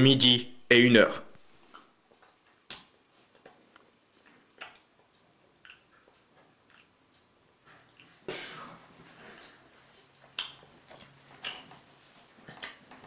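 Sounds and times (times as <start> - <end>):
faint clicks and taps: 1.6 - 8.2.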